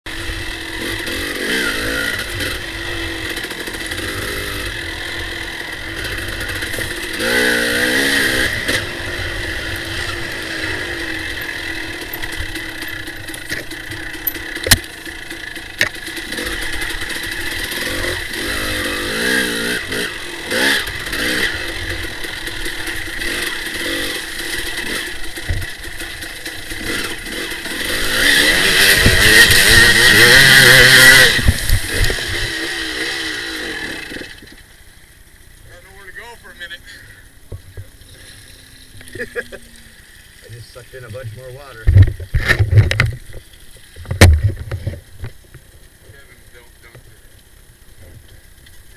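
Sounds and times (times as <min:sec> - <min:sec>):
dirt bike engine revving: 0:00.1 - 0:43.5.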